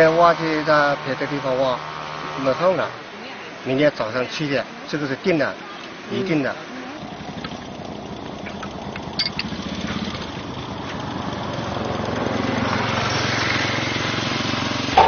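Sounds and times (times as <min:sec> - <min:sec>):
small engine running: 0:06.1 - 0:15.0.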